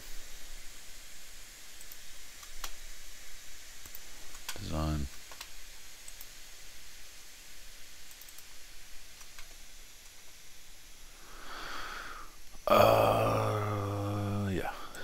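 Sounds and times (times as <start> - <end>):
background hiss: 0.0 - 15.0
computer mouse clicks: 1.8 - 2.8, 3.8 - 6.3, 8.0 - 10.2
soft breath: 11.1 - 13.9.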